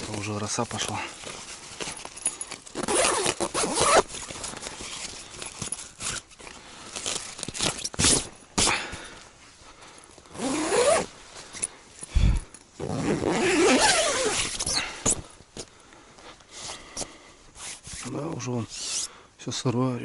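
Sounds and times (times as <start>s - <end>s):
fabric rustling: 0.0s - 15.7s
tent zipper being pulled: 0.9s - 8.8s, 10.3s - 11.7s, 12.8s - 15.2s, 17.5s - 19.1s.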